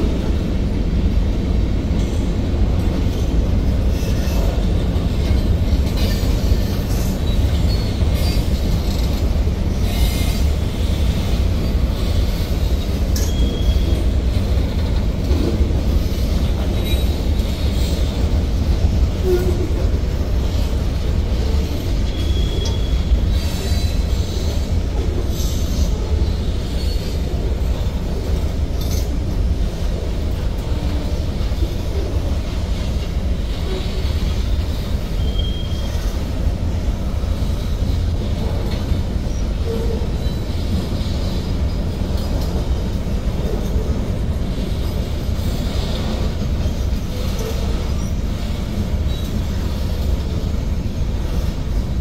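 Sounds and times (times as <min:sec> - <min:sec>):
train wheels rumbling on rails: 0:00.0 - 0:52.0
high-pitched wheel squeals: 0:13.2 - 0:14.0, 0:22.1 - 0:24.6, 0:35.1 - 0:36.2.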